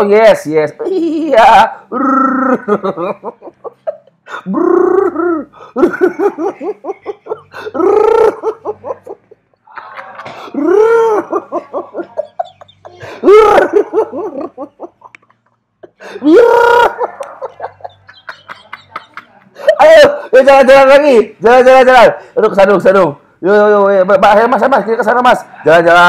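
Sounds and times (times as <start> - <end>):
person laughing loudly: 1.9 - 20.2.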